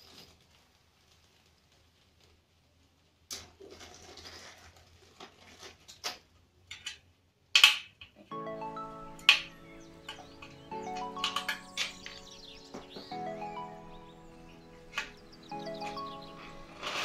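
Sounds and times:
background music: 8.3s - 17.0s.

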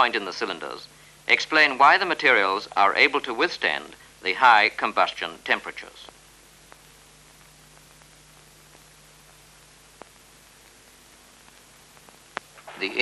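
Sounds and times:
low mains hum: 0.0s - 13.0s
steady hiss: 0.0s - 13.0s
faint clicks: 6.0s - 12.9s.

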